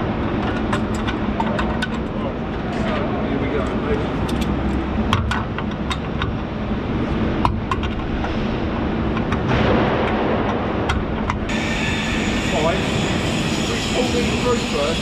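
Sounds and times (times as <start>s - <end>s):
industrial machinery drone: 0.0s - 15.0s.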